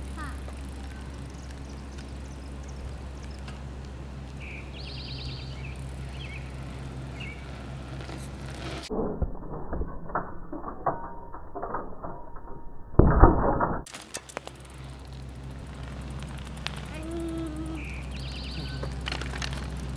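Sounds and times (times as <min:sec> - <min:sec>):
bicycle tyre rolling on asphalt: 0:00.0 - 0:09.7, 0:13.9 - 0:19.9
bicycle clicks and creaks: 0:00.0 - 0:19.9.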